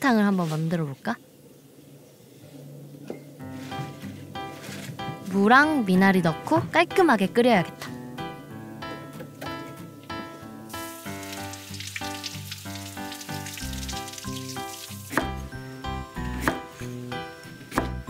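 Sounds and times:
background music: 3.3 - 18.0
tap spraying water: 10.7 - 15.4
knife chopping on wooden board: 15.1 - 15.4, 16.4 - 16.7, 17.7 - 18.0.

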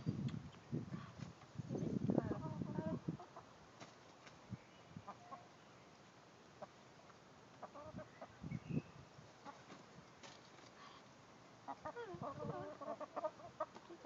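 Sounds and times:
hens clucking: 2.1 - 3.5, 5.1 - 5.5, 6.6 - 6.8, 7.5 - 8.3, 9.4 - 9.9, 11.6 - 14.0.

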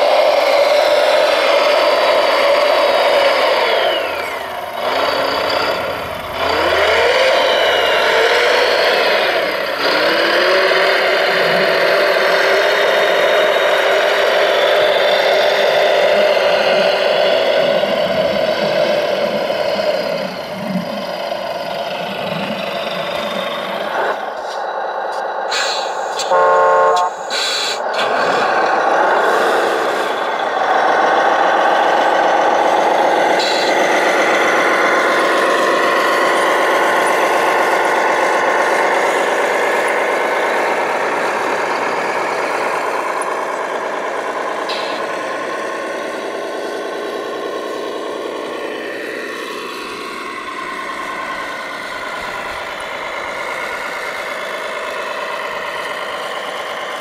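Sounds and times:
short horn blast: 26.2 - 27.3.

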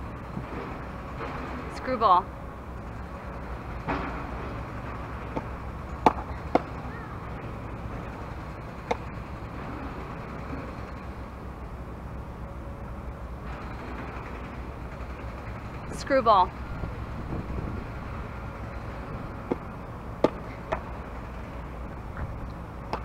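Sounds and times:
low rumble: 15.7 - 20.2.

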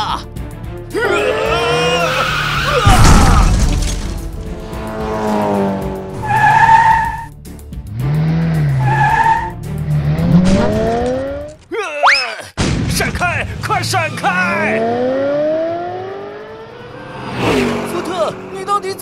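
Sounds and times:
background music: 0.0 - 11.9
cartoon race car engine: 1.0 - 7.3, 7.9 - 11.5, 14.1 - 19.0
tyres skidding: 1.0 - 11.8, 13.9 - 19.0
loud crash through a wall: 2.8 - 4.3.

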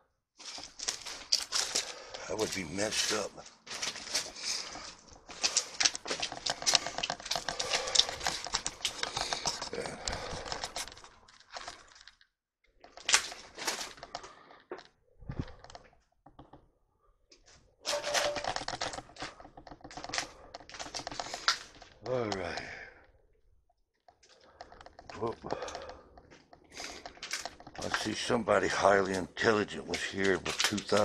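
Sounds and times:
footsteps crunching over debris: 0.4 - 12.2, 12.9 - 14.4, 25.0 - 31.0.

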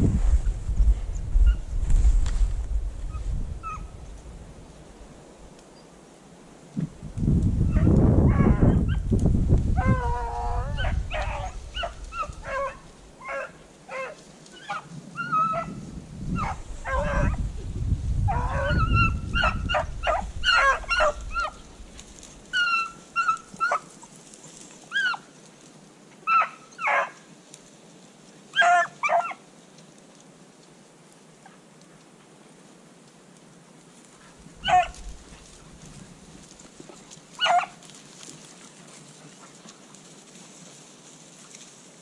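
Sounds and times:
wind rumbling on microphone: 0.0 - 5.5, 6.7 - 13.2, 14.8 - 23.7, 34.2 - 37.2
hounds barking and yipping: 3.6 - 3.9, 7.7 - 9.1, 9.8 - 17.4, 18.3 - 25.4, 26.2 - 27.3, 28.5 - 29.4, 34.2 - 41.8.

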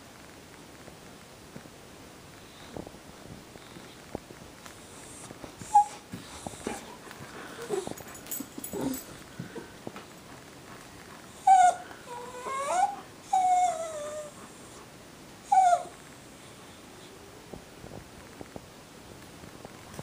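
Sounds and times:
dog whimpering: 5.0 - 9.2, 11.3 - 14.8, 15.4 - 16.0.

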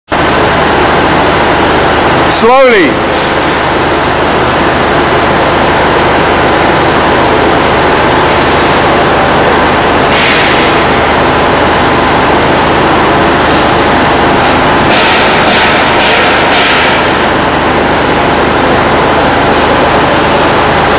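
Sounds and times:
industrial machinery rushing noise: 0.1 - 20.9
low machinery hum: 0.1 - 20.9.

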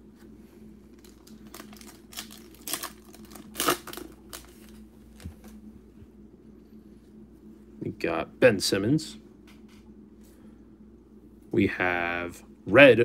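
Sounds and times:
foil wrapper tearing and crinkling: 0.9 - 4.8.

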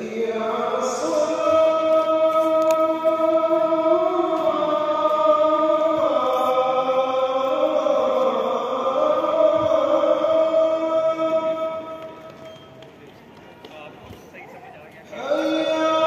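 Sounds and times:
slow vocal chant: 0.0 - 12.4, 15.2 - 16.0.

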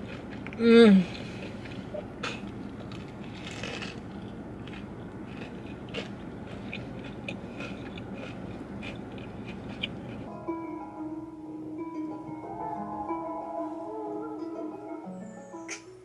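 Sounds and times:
steady background hum: 0.0 - 16.0
small clicks and crunches: 1.4 - 10.3
guitar music: 10.3 - 16.0.

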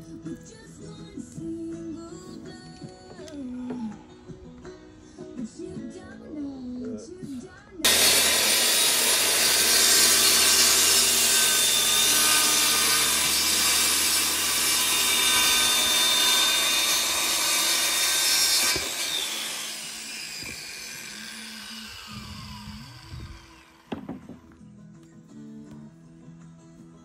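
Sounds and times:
circular saw cutting plywood: 7.8 - 24.5
saw blade winding down whine: 7.9 - 24.0.

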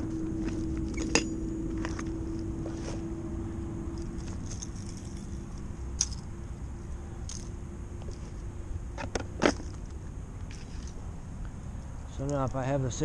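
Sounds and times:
steady low rumble: 0.0 - 13.0
clicks and knocks of gear: 0.4 - 2.8, 3.9 - 6.3, 7.2 - 8.2.

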